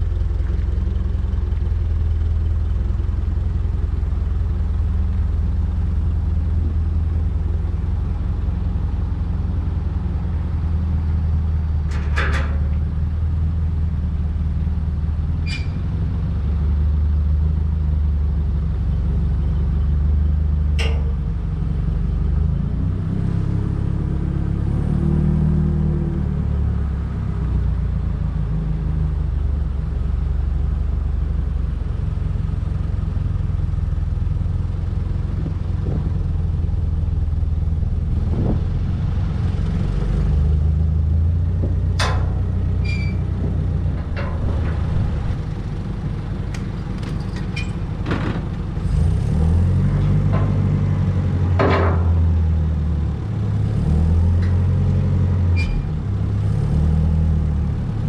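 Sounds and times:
forklift engine running: 0:00.0 - 0:58.0
sharp metallic knocks: 0:20.8 - 0:21.3, 0:42.0 - 0:45.6, 0:51.6 - 0:52.3.

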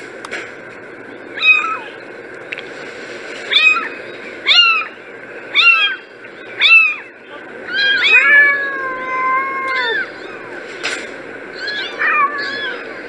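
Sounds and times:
kittens meowing: 0:01.3 - 0:02.0, 0:03.5 - 0:10.6, 0:11.5 - 0:13.0.

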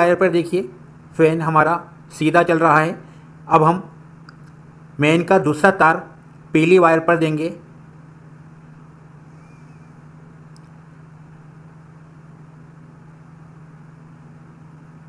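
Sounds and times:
low mechanical hum: 0:00.0 - 0:15.0
faint click: 0:10.5 - 0:10.8.

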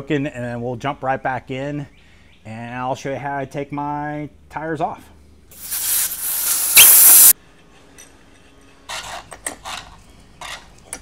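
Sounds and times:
air hissing out of tire valve: 0:05.6 - 0:07.4.

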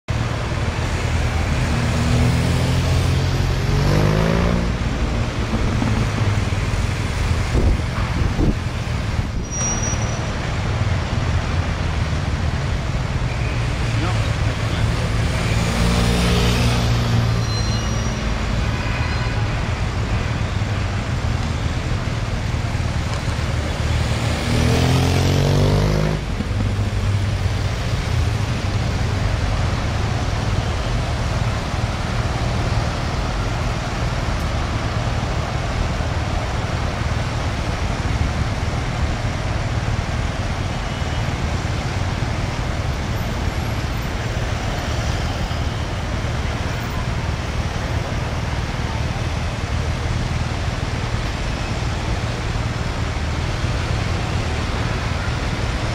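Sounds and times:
cars driving past: 0:00.1 - 0:55.9
engine revving: 0:01.8 - 0:06.7, 0:14.8 - 0:17.4, 0:24.0 - 0:26.7.

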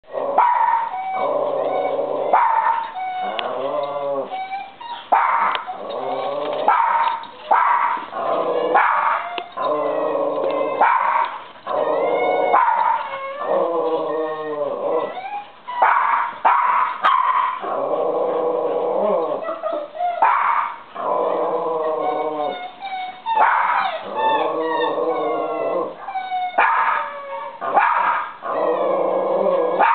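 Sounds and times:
dogs growling and whining: 0:00.0 - 0:16.0, 0:17.5 - 0:29.9
dog yips and barks: 0:01.8 - 0:03.4, 0:04.3 - 0:05.8, 0:10.7 - 0:11.4, 0:12.4 - 0:13.3, 0:15.0 - 0:17.6, 0:19.4 - 0:20.8, 0:22.0 - 0:28.3.

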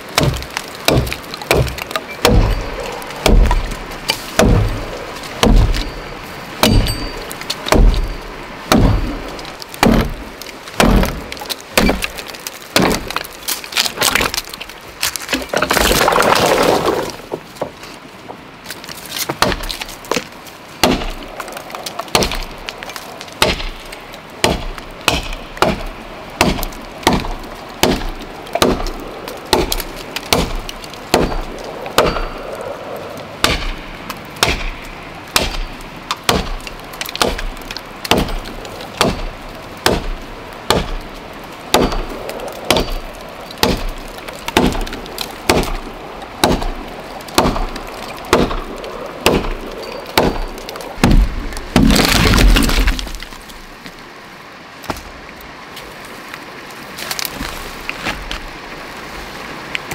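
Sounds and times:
axe chopping wood: 0:00.1 - 0:04.8, 0:05.4 - 0:05.9, 0:06.6 - 0:07.0, 0:07.6 - 0:08.1, 0:08.7 - 0:10.2, 0:10.8 - 0:13.2, 0:19.3 - 0:21.2, 0:22.1 - 0:22.5, 0:23.4 - 0:23.8, 0:24.4 - 0:32.4, 0:33.4 - 0:33.8, 0:34.4 - 0:37.5, 0:38.1 - 0:41.0, 0:41.7 - 0:43.0, 0:43.6 - 0:45.8, 0:46.4 - 0:53.1.

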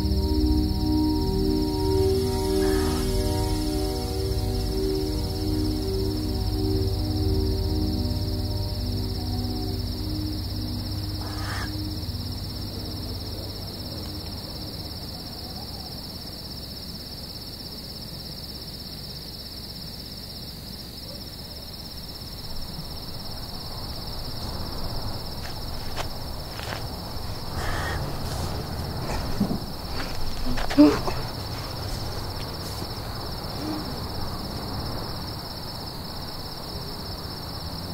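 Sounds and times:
held music tones: 0:00.0 - 0:16.1
low drone: 0:00.0 - 0:16.7, 0:22.2 - 0:37.0
crickets trilling: 0:00.0 - 0:37.9
rustling: 0:25.4 - 0:33.9.

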